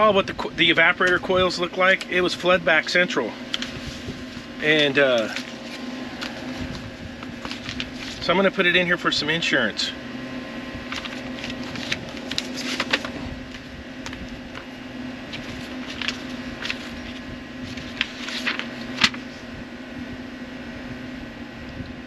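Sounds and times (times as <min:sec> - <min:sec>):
steady mechanical hum: 0:00.0 - 0:22.0
paper rustling: 0:03.4 - 0:08.6, 0:10.9 - 0:19.4.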